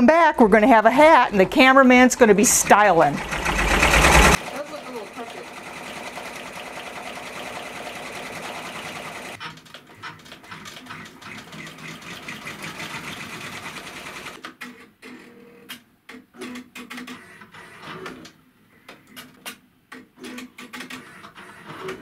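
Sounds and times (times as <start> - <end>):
embroidery machine stitching: 1.0 - 14.4.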